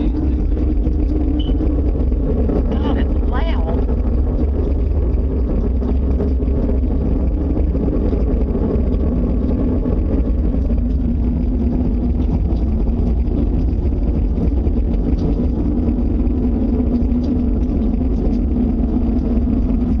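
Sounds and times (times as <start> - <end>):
low rumbling drone: 0.0 - 20.0.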